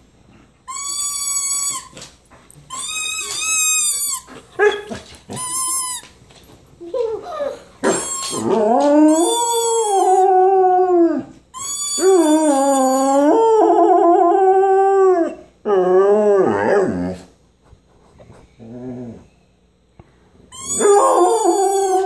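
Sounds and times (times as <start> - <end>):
dog howling: 7.9 - 17.2, 20.6 - 22.0.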